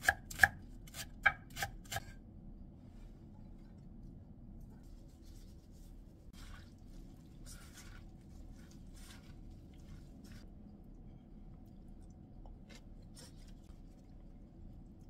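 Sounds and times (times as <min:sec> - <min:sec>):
low room hum: 0:00.0 - 0:15.0
gloved hand tossing wet vegetables: 0:04.8 - 0:10.8.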